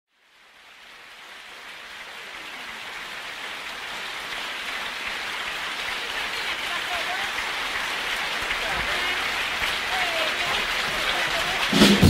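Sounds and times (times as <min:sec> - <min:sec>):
audience applause: 0:00.2 - 0:12.0.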